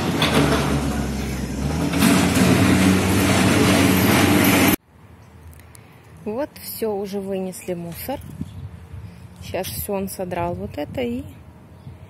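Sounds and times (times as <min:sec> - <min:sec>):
tractor engine running: 0:00.0 - 0:04.8.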